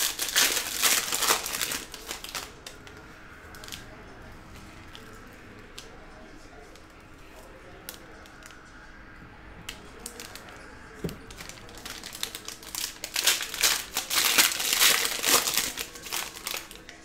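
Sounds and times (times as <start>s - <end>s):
foil wrapper crinkling: 0.0s - 2.9s, 10.0s - 17.0s.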